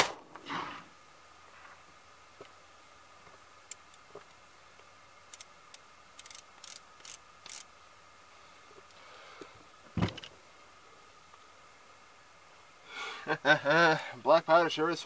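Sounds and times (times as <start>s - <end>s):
revolver metallic clicks: 5.3s - 7.7s
heavy thump: 10.0s - 10.3s.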